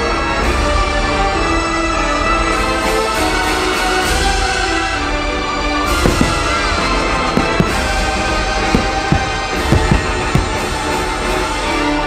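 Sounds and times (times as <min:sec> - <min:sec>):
firework bangs: 0:04.9 - 0:11.8.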